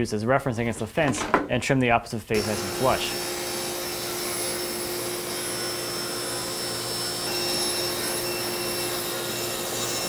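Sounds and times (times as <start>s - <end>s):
table saw cutting: 2.4s - 10.0s.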